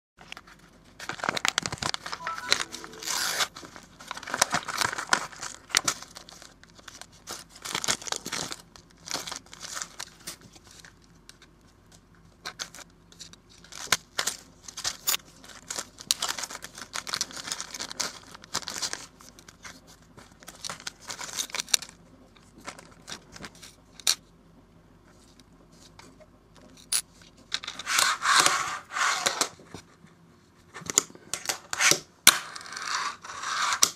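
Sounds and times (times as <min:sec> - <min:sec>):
packaging tearing and rustling: 0:01.0 - 0:02.2, 0:03.1 - 0:10.4, 0:13.6 - 0:19.8, 0:20.4 - 0:22.0.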